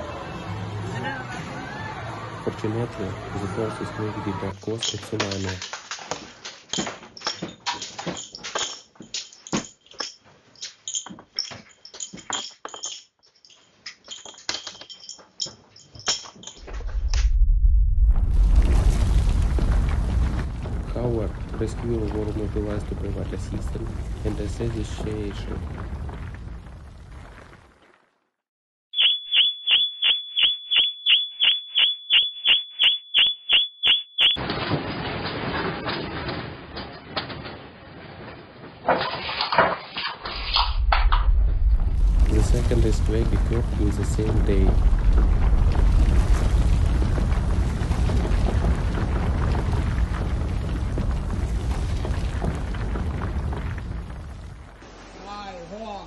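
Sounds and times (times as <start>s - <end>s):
loose objects rattling and clinking: 4.6s - 16.8s
loud low rumble: 16.7s - 26.2s, 40.6s - 51.7s
electronic alarm beeping: 29.0s - 34.4s.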